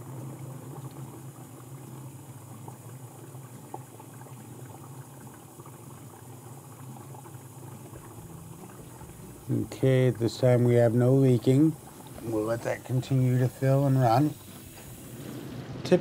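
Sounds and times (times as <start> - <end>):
water splashing in dishwasher: 6.6 - 16.0.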